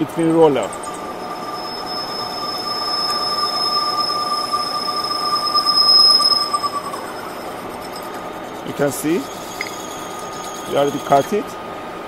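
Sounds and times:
lathe tool squealing: 0.0s - 11.8s.

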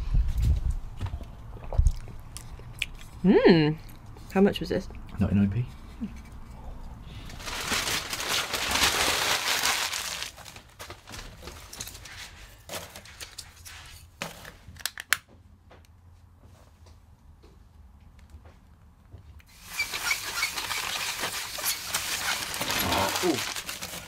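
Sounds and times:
paper crumpling: 7.2s - 13.4s, 19.5s - 24.0s.

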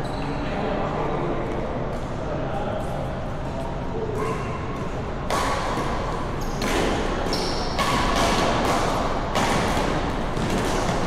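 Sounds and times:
shoe squeaks: 0.0s - 0.5s, 6.3s - 7.8s
shuttlecock hits echoing: 4.1s - 11.0s.

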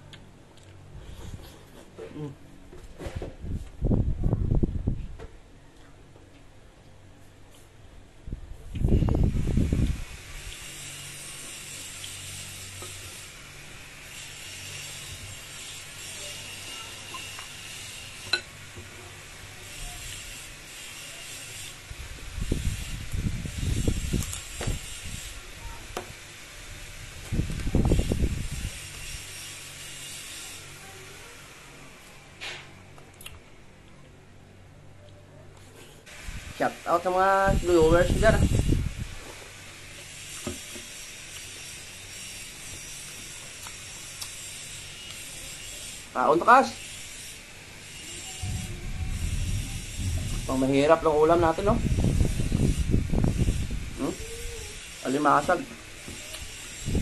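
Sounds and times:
soft chewing clicks: 32.9s - 34.2s
steady hiss: 36.0s - 57.0s.

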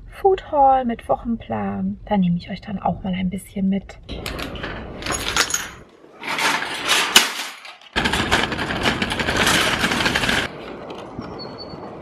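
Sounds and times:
shopping trolley rattling: 4.4s - 10.5s
trolley clattering over paving: 4.4s - 11.1s.

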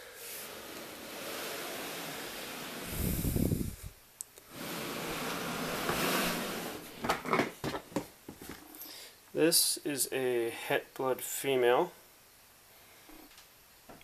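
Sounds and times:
plastic tub scraping slide: 0.1s - 3.8s, 4.5s - 7.8s
rustling handling noise: 5.0s - 8.8s.

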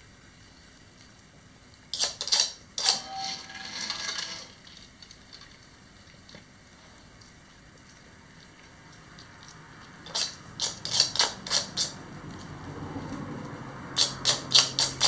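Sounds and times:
dog claws clicking on tile: 8.9s - 12.0s, 14.0s - 15.0s.

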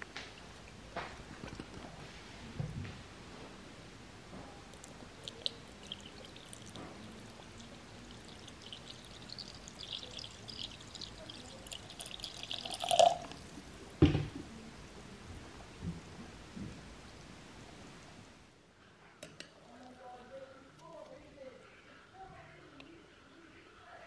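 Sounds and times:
water trickling into jar: 4.8s - 13.7s.

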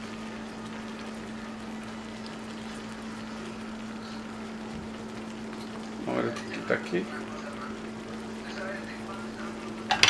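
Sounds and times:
shrimp crackling in a skillet: 0.0s - 10.0s.

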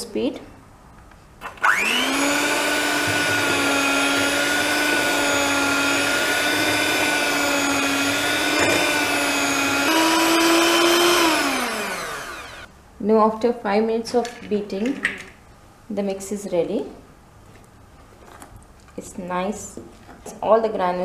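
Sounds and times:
electric hand mixer whining: 1.6s - 12.7s.

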